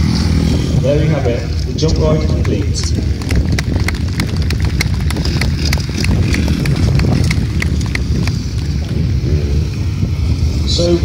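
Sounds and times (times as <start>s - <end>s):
motorcycle and quad engines: 0.0s - 11.0s
wind on microphone: 0.0s - 11.0s
hand clapping: 3.2s - 8.4s.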